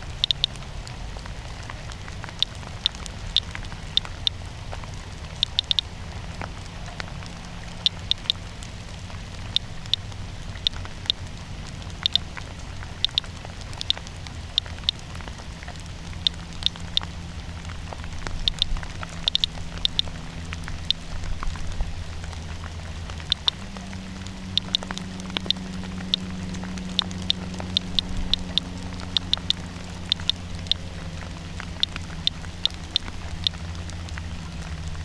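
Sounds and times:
low rumble: 0:00.0 - 0:35.0
geiger counter clicks: 0:00.1 - 0:00.6, 0:02.2 - 0:04.4, 0:05.4 - 0:05.9, 0:07.8 - 0:08.4, 0:09.4 - 0:11.3, 0:11.9 - 0:12.4, 0:13.0 - 0:15.2, 0:16.2 - 0:17.1, 0:18.4 - 0:21.5, 0:23.2 - 0:23.9, 0:24.5 - 0:30.9, 0:31.6 - 0:33.7.

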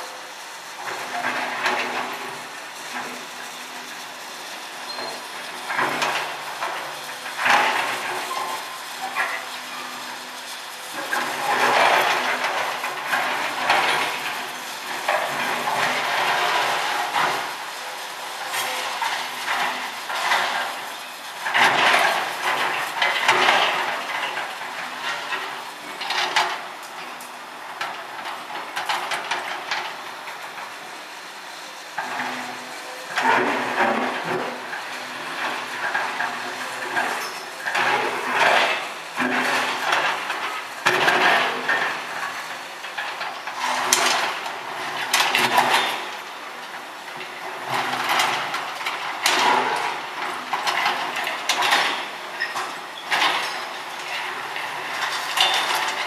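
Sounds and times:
metal clanking and scraping: 0:32.0 - 0:46.2, 0:47.2 - 0:56.0.

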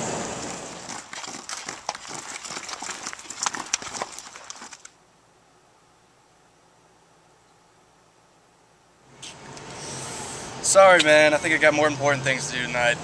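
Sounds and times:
hooves clopping on pavement: 0:00.0 - 0:04.9.

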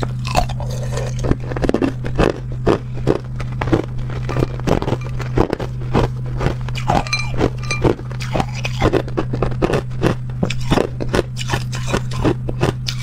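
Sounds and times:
ice crunching between teeth: 0:00.0 - 0:13.0
steady low hum: 0:00.0 - 0:13.0.

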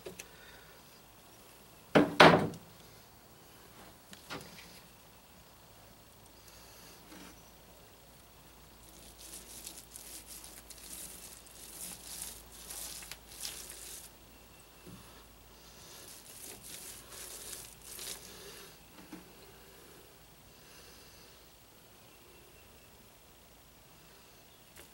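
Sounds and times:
paint roller scratchy hiss: 0:08.8 - 0:14.2, 0:14.9 - 0:18.8.

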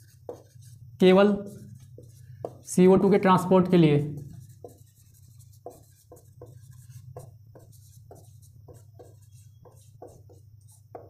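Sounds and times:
low steady hum: 0:00.0 - 0:11.0
marker pen writing on whiteboard: 0:00.0 - 0:11.0.

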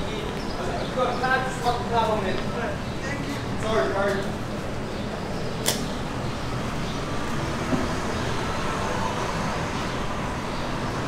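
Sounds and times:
city street traffic rumble: 0:00.0 - 0:11.0
sharp click: 0:05.6 - 0:05.9.

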